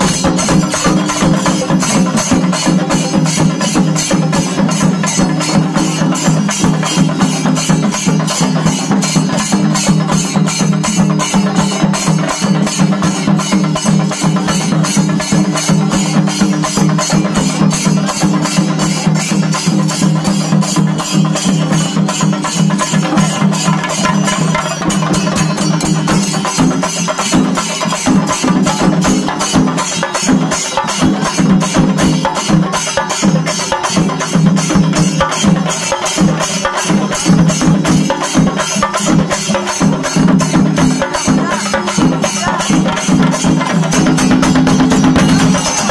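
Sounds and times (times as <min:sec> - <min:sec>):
drums beaten with sticks: 0:00.0 - 0:45.9
hand cymbals clashing: 0:00.0 - 0:45.9.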